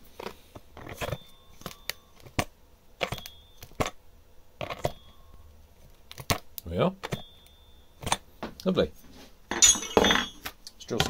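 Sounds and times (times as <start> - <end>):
metal drill shank knocking and clinking: 9.5 - 11.0.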